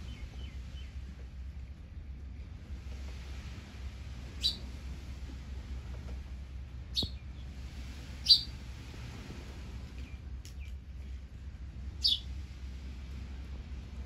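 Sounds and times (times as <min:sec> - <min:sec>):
steady low rumble: 0:00.0 - 0:14.0
sparrow chirping: 0:04.4 - 0:04.6, 0:06.9 - 0:07.2, 0:08.2 - 0:08.5, 0:12.0 - 0:12.3.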